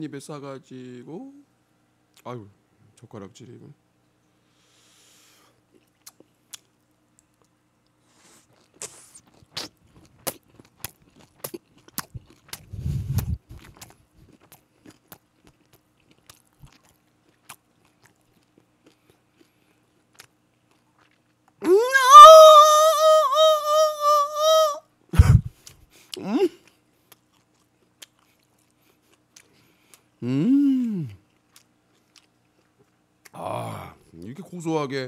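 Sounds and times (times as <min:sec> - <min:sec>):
person chewing food: 0:05.6 - 0:22.4, 0:25.4 - 0:30.2, 0:31.0 - 0:33.4
wet mouth clicks: 0:08.6 - 0:14.6.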